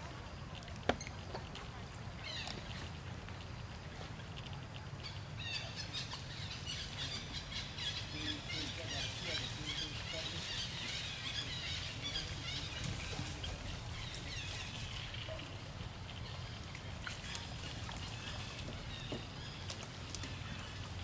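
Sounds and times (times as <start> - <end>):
faint water splashes: 0.0 - 21.0
high chirping calls: 5.0 - 20.8.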